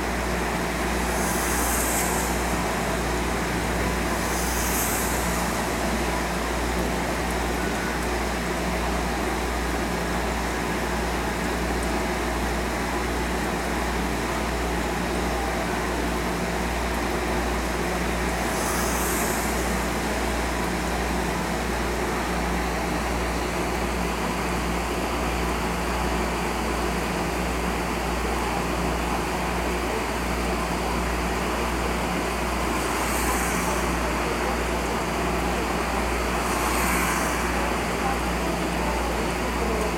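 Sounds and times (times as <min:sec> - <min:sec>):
aquarium equipment humming: 0:00.0 - 0:13.6
circulating water rushing: 0:00.0 - 0:39.9
brief high hisses: 0:00.7 - 0:06.5, 0:18.4 - 0:20.3, 0:32.8 - 0:34.4, 0:36.3 - 0:38.0.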